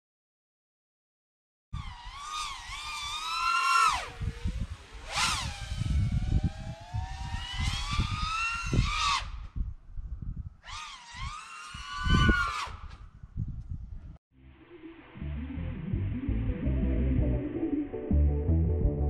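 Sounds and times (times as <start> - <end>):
drone motors whining: 1.8 - 9.5, 10.6 - 13.0
wind buffeting microphone: 3.9 - 14.2.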